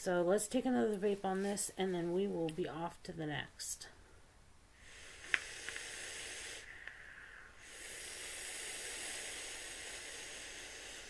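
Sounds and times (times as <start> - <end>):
vape draw hiss: 4.8 - 11.0
vape click: 5.2 - 6.0, 6.7 - 7.0.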